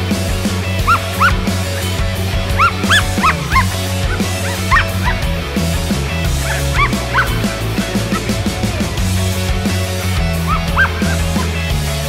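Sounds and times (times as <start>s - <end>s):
background music with bass line: 0.0s - 12.0s
dog yipping and whining: 0.9s - 1.4s, 2.6s - 5.2s, 6.4s - 8.2s, 10.5s - 11.2s.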